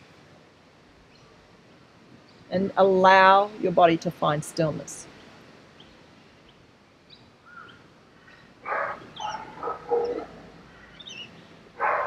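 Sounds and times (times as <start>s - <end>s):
small birds chirping: 5.1s - 12.0s.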